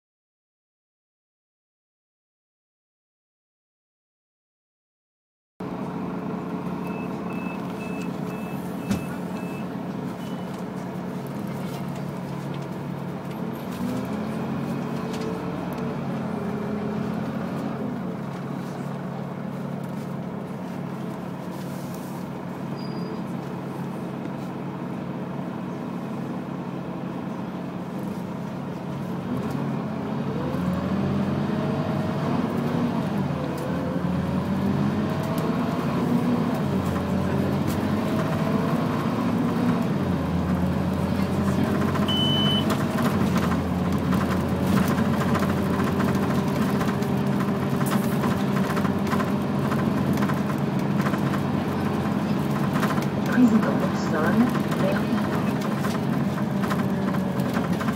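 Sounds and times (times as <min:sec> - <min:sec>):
vehicle interior hum: 0:05.6 - 0:57.9
short high beeps: 0:42.1 - 0:42.7.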